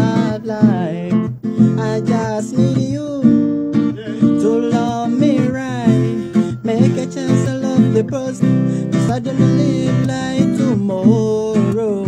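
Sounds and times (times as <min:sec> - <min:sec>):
acoustic guitar strumming: 0:00.0 - 0:12.0
man singing: 0:00.0 - 0:12.0.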